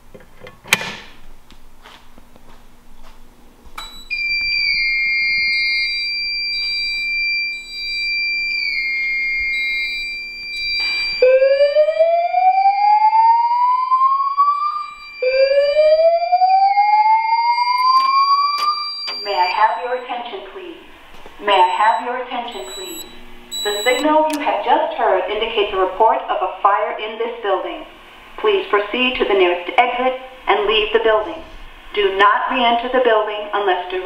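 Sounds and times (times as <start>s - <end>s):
high-pitched alarm tone: 3.8s - 20.6s, 21.4s - 24.1s.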